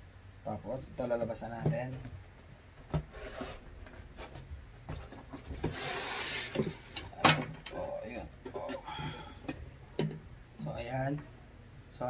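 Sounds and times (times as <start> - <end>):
styrofoam rubbing and knocking: 3.0 - 6.9.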